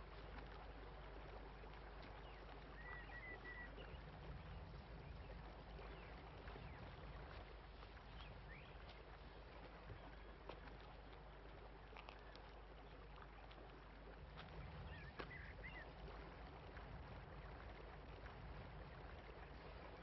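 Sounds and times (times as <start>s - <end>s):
low steady hiss: 0.0s - 20.0s
birdsong: 2.1s - 10.8s, 14.4s - 16.0s.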